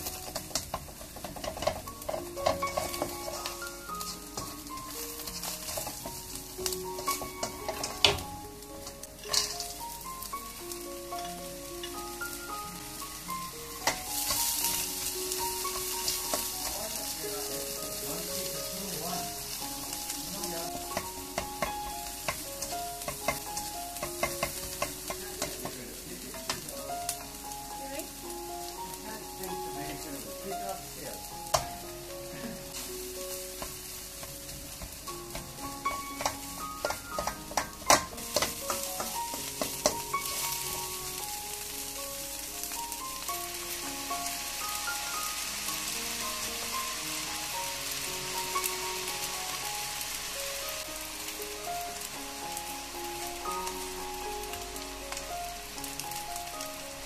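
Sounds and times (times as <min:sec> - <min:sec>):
food sizzling in a wok: 0:00.0 - 0:57.0
spatula clicking on pan: 0:00.2 - 0:04.2, 0:21.0 - 0:25.8, 0:34.8 - 0:40.5
spatula scraping a wok: 0:00.2 - 0:06.4.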